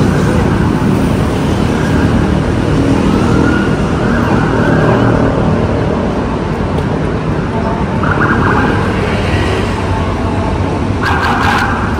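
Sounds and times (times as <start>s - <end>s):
road traffic: 0.0s - 11.9s
siren wailing: 3.0s - 5.4s, 7.8s - 9.5s, 11.0s - 11.9s.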